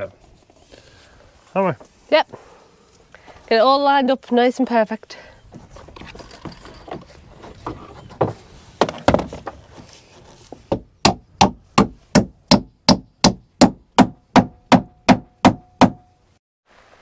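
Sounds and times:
hammer knocking nails into wood: 10.7 - 16.0.

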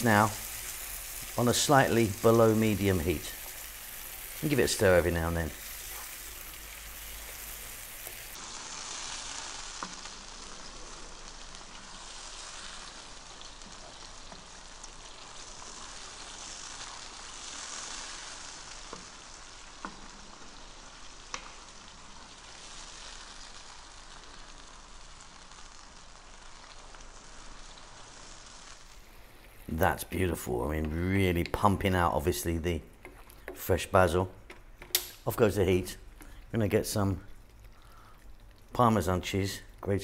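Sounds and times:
sauce sizzling in a frying pan: 0.0 - 40.0
wooden spoon clicking on pan: 34.5 - 35.2.

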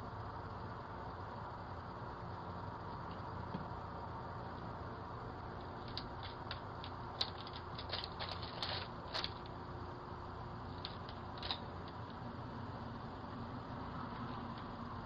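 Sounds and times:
candy wrappers crinkling: 5.7 - 9.5, 10.7 - 12.1.

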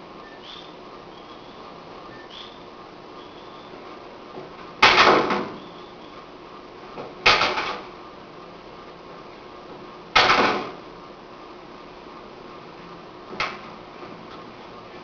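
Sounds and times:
martial arts strikes landing: 4.8 - 5.5, 10.2 - 10.8.

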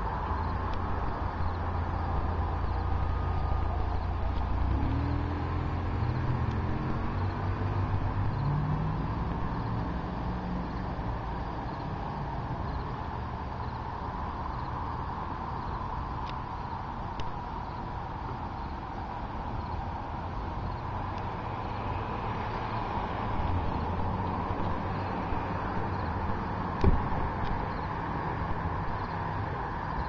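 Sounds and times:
outdoor rumble: 0.0 - 30.0
vehicle engine passing: 1.6 - 12.4.

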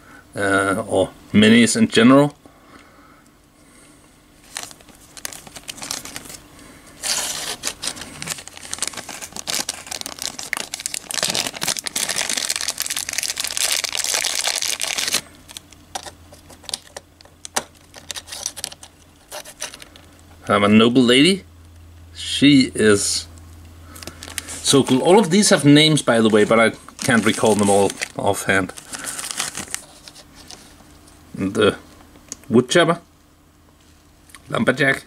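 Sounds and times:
plastic packaging crinkling: 4.4 - 20.1, 24.0 - 30.8.

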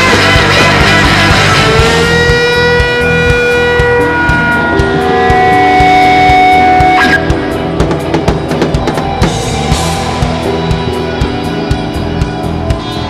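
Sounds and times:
bass drum and snare beat: 0.0 - 13.0
electric guitars: 0.0 - 13.0.

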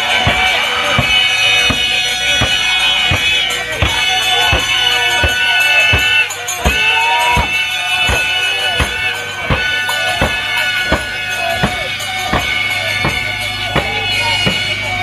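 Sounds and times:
high sustained melody: 0.0 - 15.0
steady drum beat: 0.0 - 15.0.

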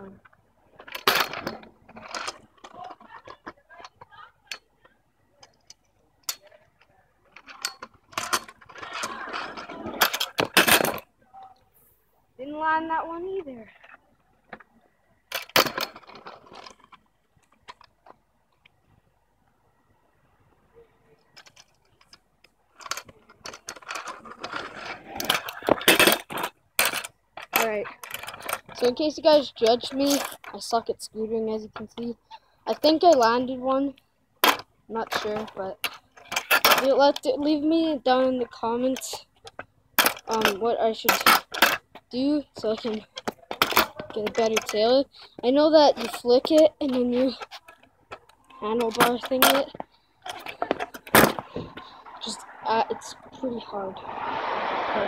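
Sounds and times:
scooter wheels clicking and knocking: 0.0 - 11.1, 12.4 - 18.2, 21.2 - 55.0
scooter rolling scrape: 8.2 - 11.0, 22.8 - 30.4, 50.3 - 55.0
sharp scooter clatter: 22.9 - 30.8, 48.6 - 55.0.

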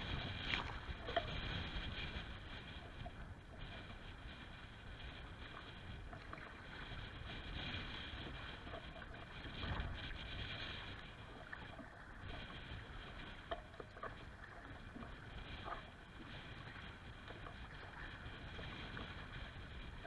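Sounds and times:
small water splashes: 0.0 - 1.4
lake water lapping against kayak: 0.0 - 20.0
wind rumbling on microphone: 0.0 - 20.0.

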